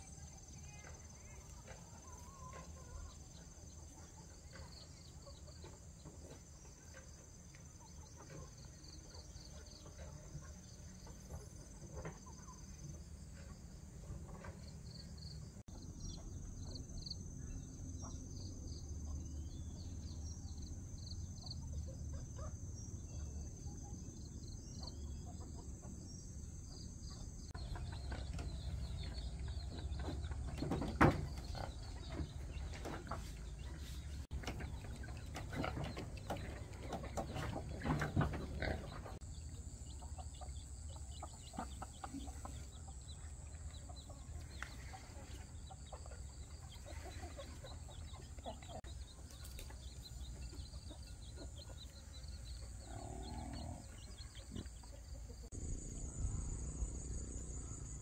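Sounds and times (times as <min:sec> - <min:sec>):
insects chirping: 0:04.4 - 0:31.8, 0:47.8 - 0:58.0
insects droning: 0:49.8 - 0:58.0
low rumble: 0:55.5 - 0:58.0.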